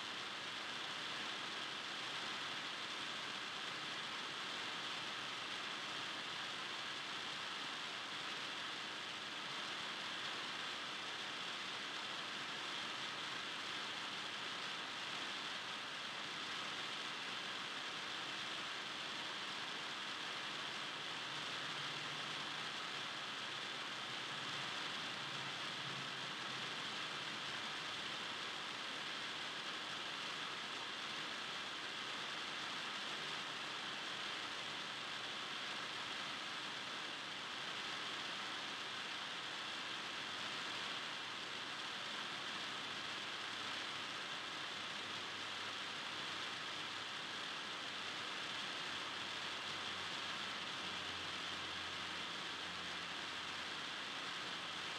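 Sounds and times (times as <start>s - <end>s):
steady gym background hiss: 0.0s - 54.9s.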